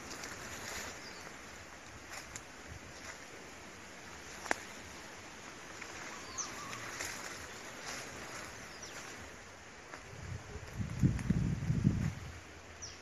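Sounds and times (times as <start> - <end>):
steady hiss: 0.0 - 13.0
faint bird chirps: 5.9 - 9.2.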